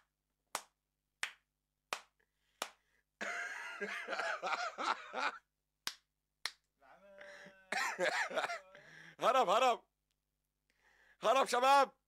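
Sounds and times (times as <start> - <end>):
man laughing and exclaiming: 7.0 - 9.4.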